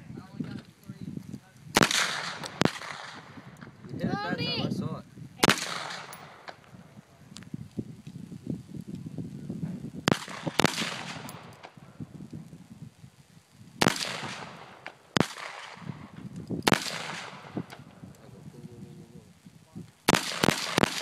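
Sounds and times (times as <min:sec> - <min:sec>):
rifle shots: 0:01.8 - 0:03.4, 0:05.4 - 0:06.6, 0:10.0 - 0:11.8, 0:13.8 - 0:17.8, 0:20.1 - 0:21.0.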